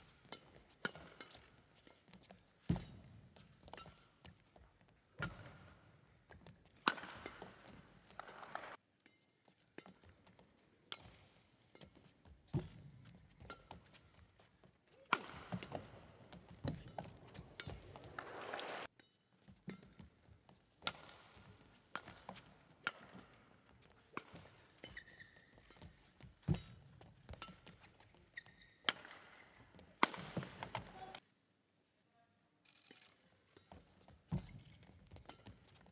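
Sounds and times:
racket striking shuttlecock: 6.8 - 8.5, 15.0 - 20.1, 20.8 - 27.8, 28.8 - 31.2
crowd noise: 17.8 - 18.9.

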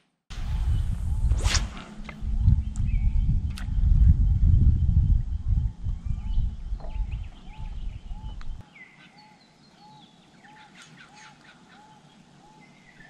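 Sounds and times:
low rumble: 0.3 - 8.6
wild birds chirping and whistling: 2.0 - 3.4, 4.2 - 13.0.

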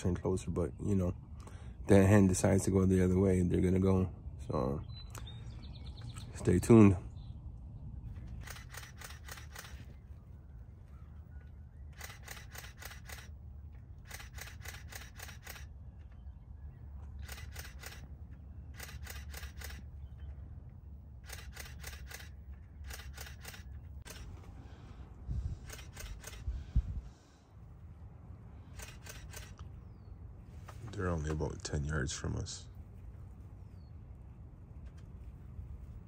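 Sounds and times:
camera shutter clicking in bursts: 8.3 - 10.0, 11.9 - 15.8, 17.2 - 20.0, 21.2 - 24.4, 25.6 - 26.5, 28.7 - 29.7.

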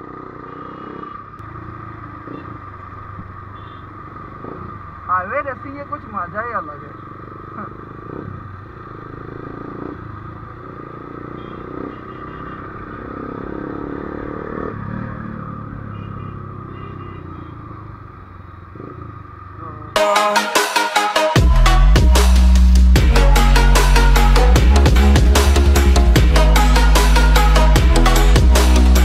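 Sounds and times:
motorcycle engine running: 0.0 - 20.0, 21.4 - 29.0
wind and road noise: 0.0 - 20.0.

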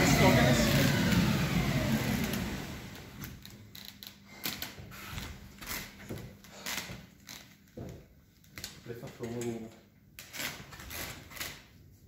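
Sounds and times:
machine running down: 0.0 - 3.4.

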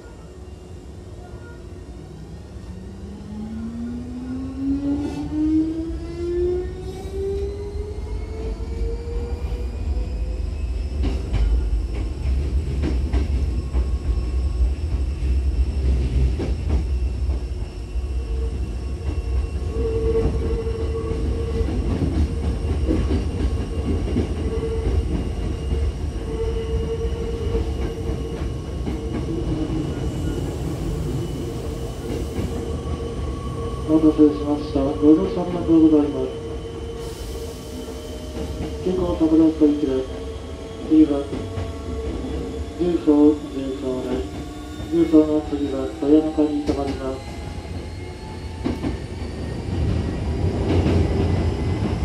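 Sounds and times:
train running rumble: 9.6 - 52.0.

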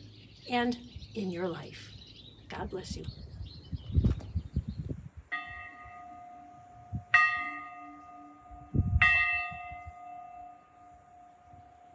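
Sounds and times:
church bell ringing: 5.3 - 11.9.

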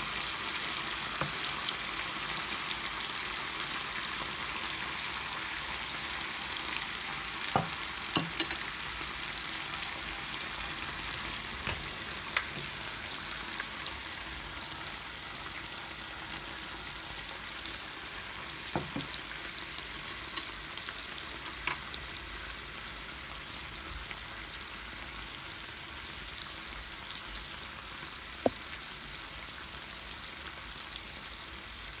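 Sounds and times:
food sizzling in a pot: 0.0 - 32.0
metal tongs clicking on bowl: 8.2 - 8.6, 21.4 - 21.8.

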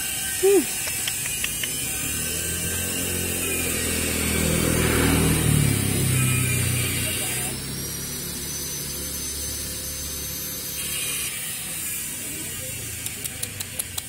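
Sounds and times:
vehicle engine hum: 0.0 - 11.1
street background noise: 0.0 - 14.0
sharp clicks: 0.7 - 1.8.

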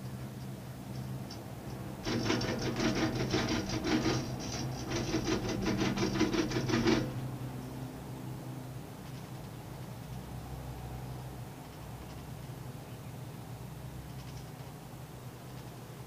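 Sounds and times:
steady low hum: 0.0 - 15.4
rapid mechanical clatter: 2.0 - 7.5.

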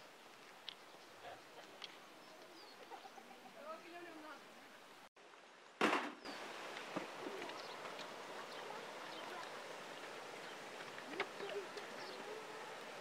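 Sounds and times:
birds chirping: 0.0 - 5.0, 6.1 - 13.0
background hiss: 0.0 - 13.0
faint voices: 7.1 - 13.0.

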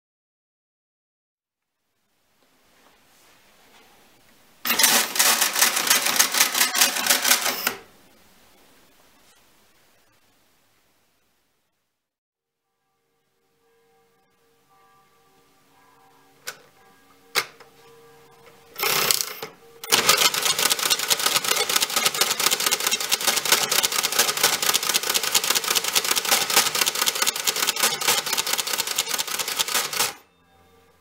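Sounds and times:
mechanical calculator clattering: 4.7 - 7.9, 18.8 - 30.2.

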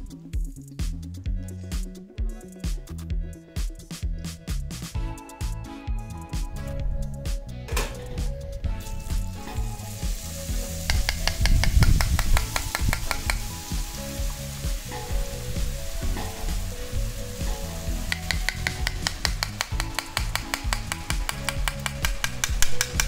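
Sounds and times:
batter sizzling in hot oil: 9.4 - 21.4
spoon tapping metal ladle: 10.8 - 13.5, 18.0 - 23.0.

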